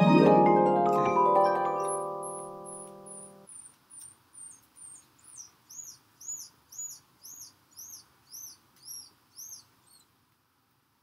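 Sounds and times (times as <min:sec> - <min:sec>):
mallet percussion tune: 0:00.0 - 0:03.4
animal chirping: 0:01.8 - 0:10.1.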